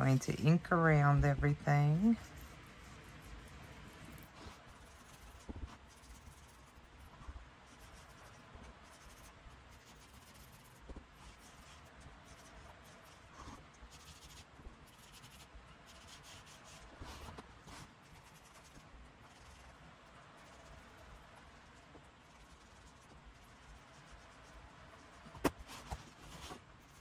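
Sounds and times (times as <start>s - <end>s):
ink rubbing on paper: 2.0s - 19.6s.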